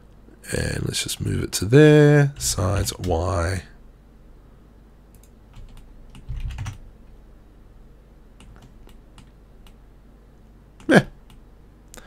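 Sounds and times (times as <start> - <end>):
keyboard keys clicking: 5.2 - 6.8.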